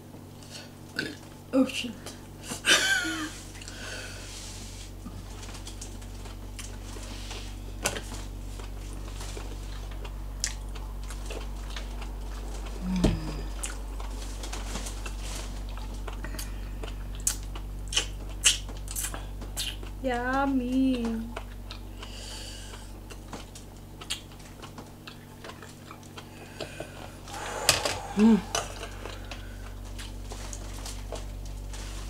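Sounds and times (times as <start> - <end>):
steady low hum: 0.0 - 32.0
chewing with wet mouth clicks: 7.8 - 12.8, 15.0 - 20.0, 20.9 - 22.1, 22.7 - 27.0.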